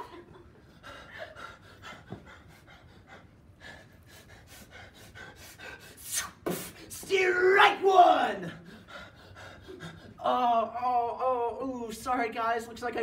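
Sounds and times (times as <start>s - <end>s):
man panting: 0.4s - 7.1s, 8.4s - 10.3s.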